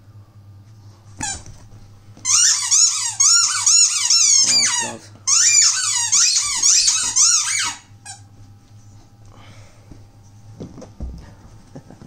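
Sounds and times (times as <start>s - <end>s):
squeaky dog toy squeaking: 2.3s - 8.2s.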